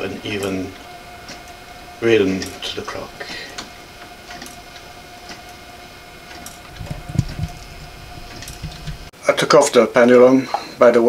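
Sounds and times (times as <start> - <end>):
pendulum clock ticking: 0.0 - 9.1
low rumble: 6.7 - 9.1.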